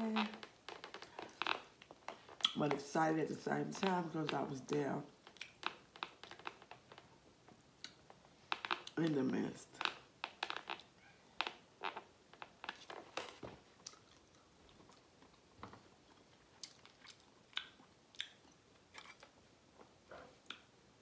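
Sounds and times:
person chewing food: 0:05.2 - 0:07.1, 0:10.3 - 0:20.8.

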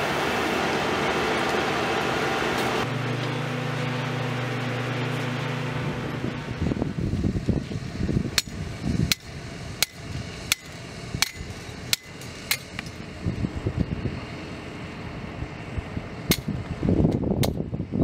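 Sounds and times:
hammer striking steel stakes: 0:08.3 - 0:13.0, 0:16.3 - 0:16.5.

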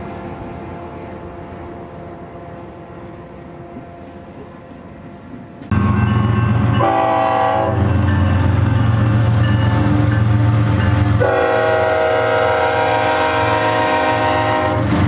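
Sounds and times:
train rumble: 0:00.0 - 0:15.0
train horn blast: 0:05.7 - 0:08.8, 0:09.6 - 0:15.0.

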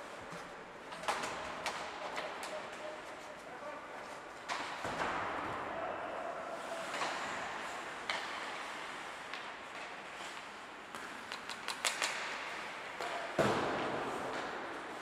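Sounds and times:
ice rink hall ambience: 0:00.0 - 0:15.0
sticks clacking on puck: 0:00.2 - 0:03.4, 0:06.8 - 0:15.0.

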